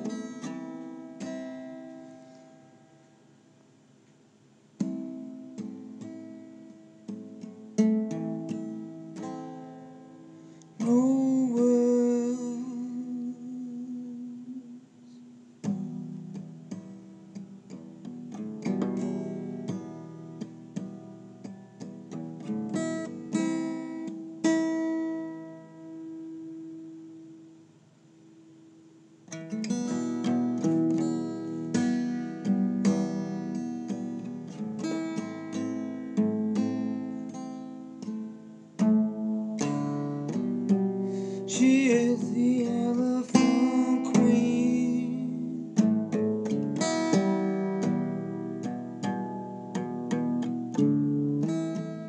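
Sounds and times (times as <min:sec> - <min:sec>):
acoustic guitar chords ringing: 0:00.0 - 0:52.0
person singing: 0:10.8 - 0:15.5, 0:41.2 - 0:46.6.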